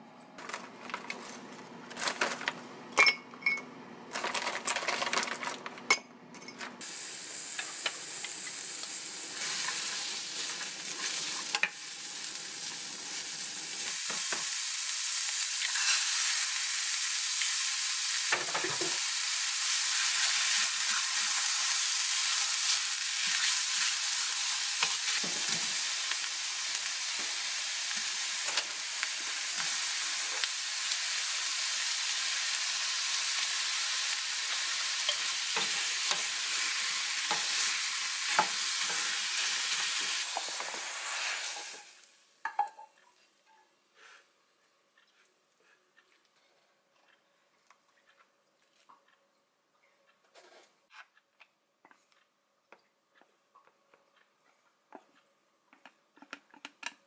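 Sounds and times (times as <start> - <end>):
food sizzling in a frying pan: 6.8 - 42.2.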